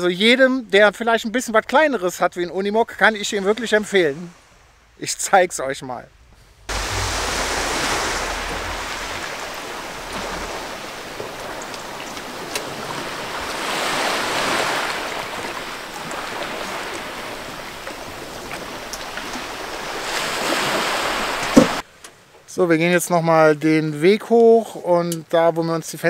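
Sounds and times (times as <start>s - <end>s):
wind rumble on microphone: 6.1s - 13.6s
waves washing onto pebble beach: 6.7s - 21.8s.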